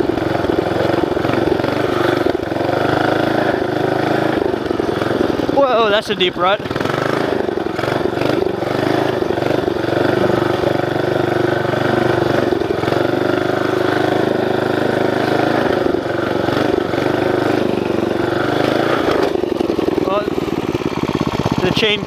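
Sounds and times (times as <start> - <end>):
mini bike engine revving: 0.0 - 22.0.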